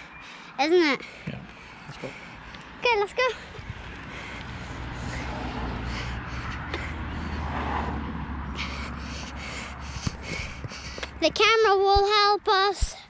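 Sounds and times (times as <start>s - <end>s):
quick footsteps on tarmac: 1.2s - 7.5s, 9.4s - 11.2s
steady low rumble: 1.3s - 11.4s.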